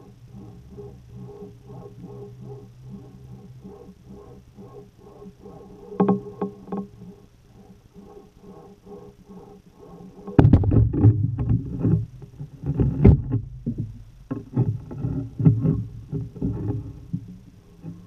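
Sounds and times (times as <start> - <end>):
low underwater rumbling: 0.0 - 18.0
underwater knocking: 10.2 - 12.1.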